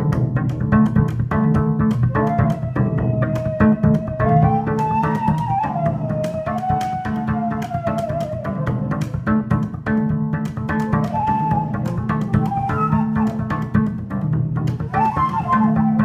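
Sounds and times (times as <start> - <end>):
cello playing low notes: 0.0 - 16.0
flute phrases: 2.1 - 9.4, 10.9 - 13.9, 14.8 - 16.0.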